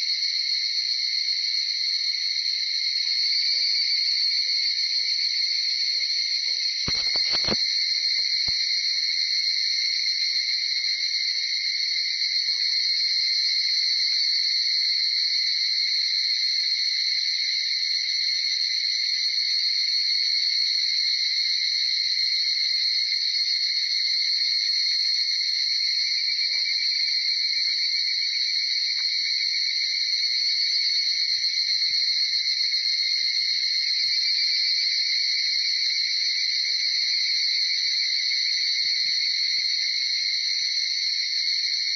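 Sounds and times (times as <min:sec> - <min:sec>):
chorus of cicadas calling: 0:00.0 - 0:41.9.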